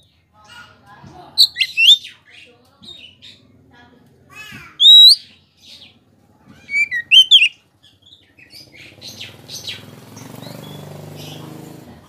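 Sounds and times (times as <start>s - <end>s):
bird singing whistled phrases: 1.4s - 2.1s, 4.8s - 5.2s, 6.7s - 7.6s
soft bird chirps: 1.4s - 3.4s, 4.8s - 5.8s, 6.7s - 11.6s.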